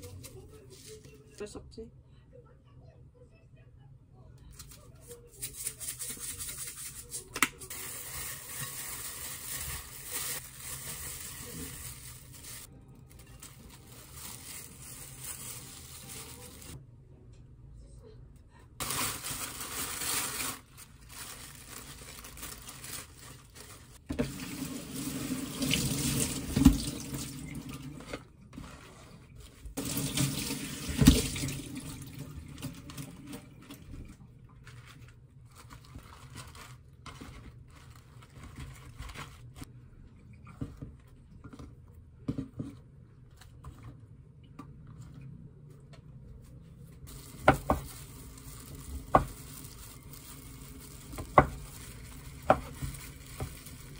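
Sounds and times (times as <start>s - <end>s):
lettuce leaves being handled: 5.4s - 16.8s, 18.8s - 24.0s, 34.6s - 39.7s, 46.9s - 53.9s.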